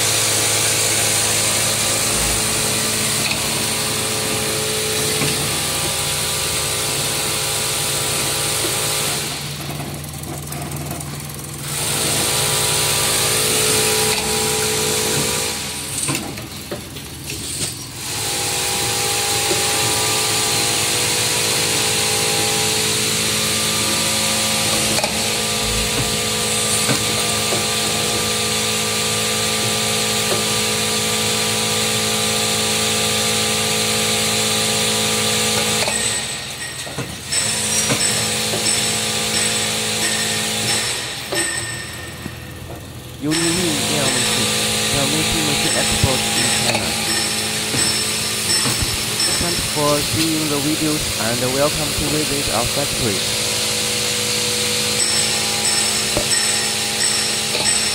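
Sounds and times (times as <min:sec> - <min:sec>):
machine whirring with high hiss: 0:43.2 - 0:57.9.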